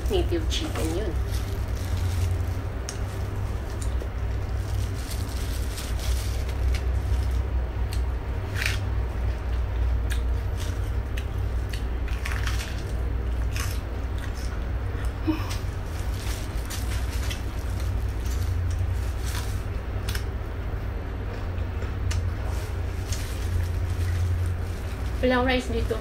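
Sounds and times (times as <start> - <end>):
plastic glove crinkling: 0.0 - 7.5, 15.3 - 20.2, 22.2 - 26.0
lettuce leaf crunching: 0.0 - 20.4, 22.1 - 26.0
low rumble: 0.0 - 26.0.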